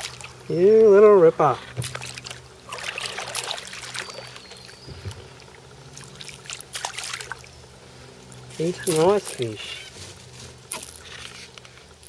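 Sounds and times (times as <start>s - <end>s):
quiet water movement: 0.0s - 12.0s
fish splashing at water surface: 1.8s - 7.5s.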